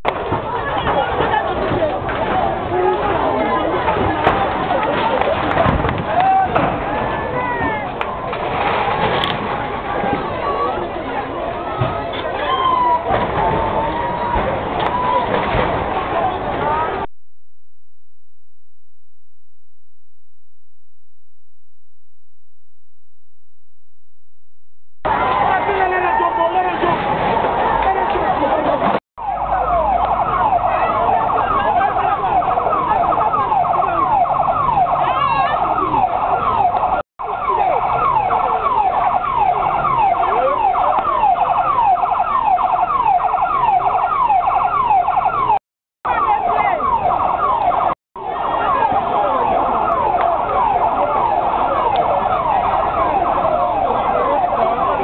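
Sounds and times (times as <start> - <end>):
fire engine siren wailing: 0.2 - 17.1, 29.2 - 55.0.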